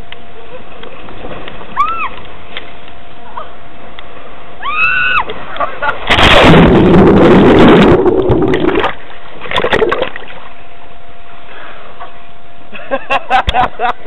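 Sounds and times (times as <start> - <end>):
underwater churning water: 5.8 - 10.7
splash into pool: 6.0 - 10.5.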